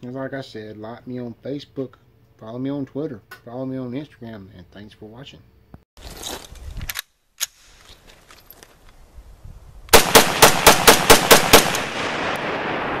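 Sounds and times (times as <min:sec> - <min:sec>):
rifle shots: 0:09.9 - 0:13.0.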